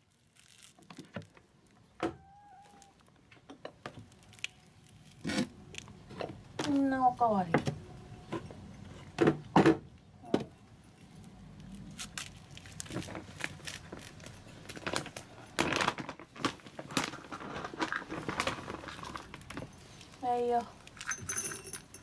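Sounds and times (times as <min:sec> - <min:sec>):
cat crunching dry kibble: 0:00.0 - 0:01.7, 0:11.1 - 0:19.6.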